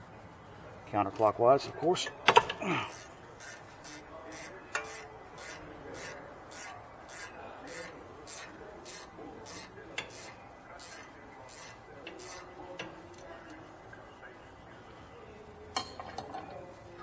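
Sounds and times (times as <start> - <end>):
hand ratchet rasping: 2.8 - 12.5.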